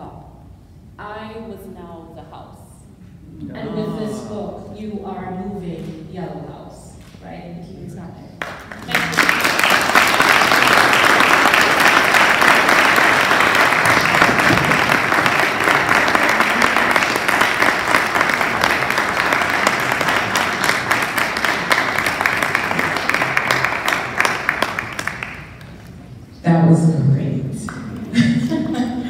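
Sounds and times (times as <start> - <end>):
audience applauding: 8.4 - 25.9.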